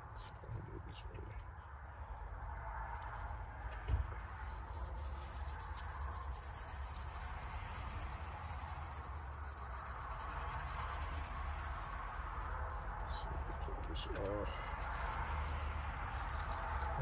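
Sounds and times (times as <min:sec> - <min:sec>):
steady low rumble: 0:00.0 - 0:17.0
rubbing and handling of gold leaf: 0:04.2 - 0:17.0
rapid high ticking: 0:04.8 - 0:14.0.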